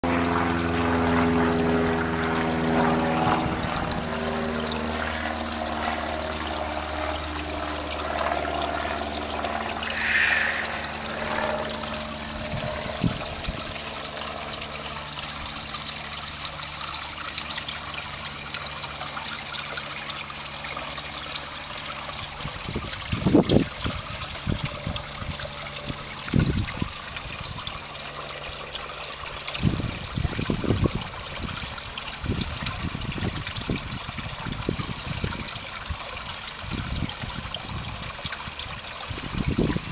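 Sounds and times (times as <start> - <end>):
waterfall pouring into pond: 0.0 - 39.9
low hum: 0.1 - 16.0.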